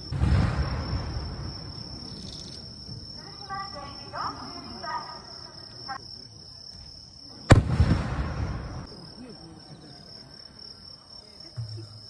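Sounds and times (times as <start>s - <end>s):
firework bang: 0.0s - 1.8s, 7.5s - 9.0s
crickets chirring: 0.0s - 12.0s.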